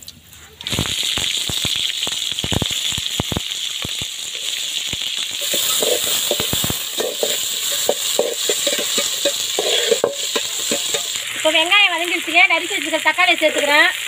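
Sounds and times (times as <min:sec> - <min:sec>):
onions sizzling in hot oil: 0:00.0 - 0:14.0
metal ladle scraping a pot: 0:05.4 - 0:11.2.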